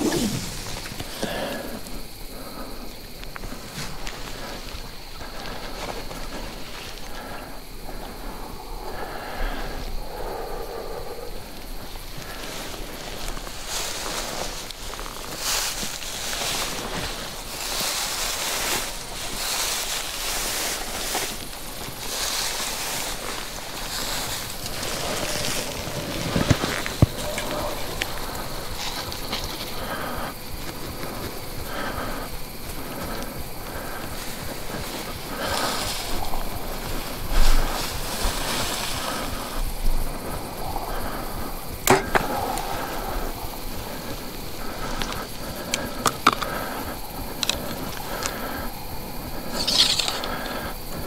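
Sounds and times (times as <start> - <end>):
rustling dry grass: 0.0 - 51.0
wind on microphone: 33.4 - 45.7
grass and clothing swishing: 34.1 - 40.2
sharp cracks: 41.8 - 42.9.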